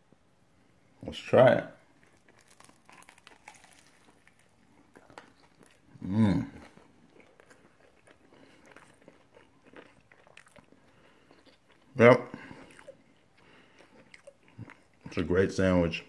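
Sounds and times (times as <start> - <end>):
chewing and crunching: 1.8 - 15.3
man humming: 6.0 - 6.6.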